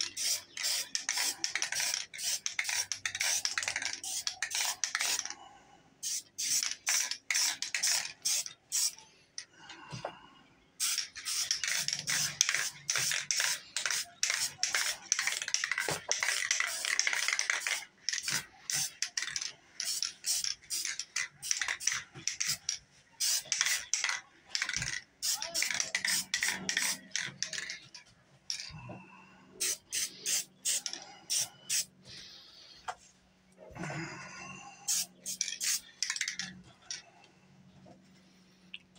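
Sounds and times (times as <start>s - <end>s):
spray paint can hissing: 0.0s - 5.3s, 6.0s - 9.0s, 10.8s - 27.7s, 29.6s - 31.9s, 34.9s - 36.4s.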